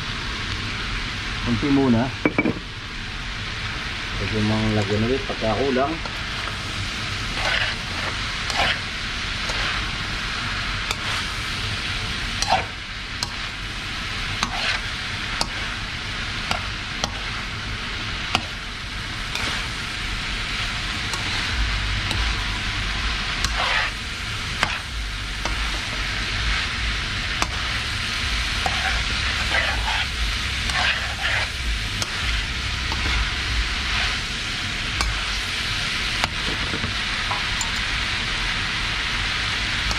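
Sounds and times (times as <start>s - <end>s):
meat sizzling in a wok: 0.0s - 39.9s
metal spatula scraping a pan: 7.3s - 9.8s, 14.4s - 15.6s, 23.4s - 24.0s, 28.6s - 32.3s.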